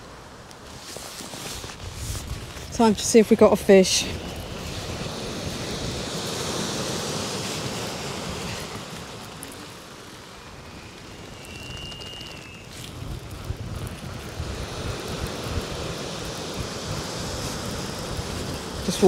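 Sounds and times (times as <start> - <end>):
waves washing over shingle: 0.0 - 19.0
wind on microphone: 0.6 - 19.0
faint high whistle: 10.5 - 12.9.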